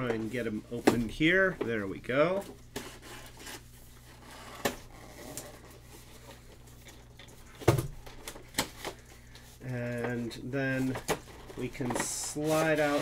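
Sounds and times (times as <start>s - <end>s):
cardboard scraping: 2.7s - 6.5s, 10.7s - 13.0s.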